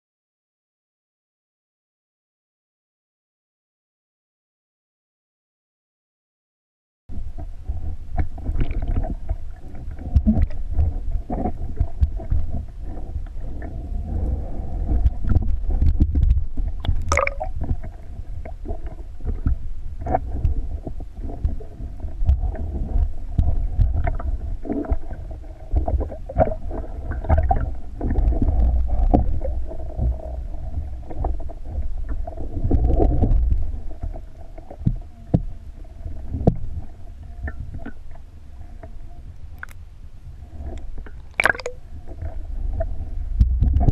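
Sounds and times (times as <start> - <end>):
underwater rumble and sloshing: 7.1 - 43.9
clicks and crackles: 15.0 - 18.0, 39.6 - 39.8.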